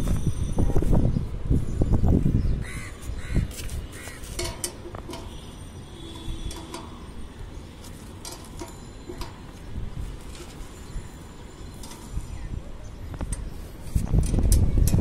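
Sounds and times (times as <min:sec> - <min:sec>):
metallic clicks and taps: 0:04.4 - 0:05.3, 0:06.5 - 0:07.0.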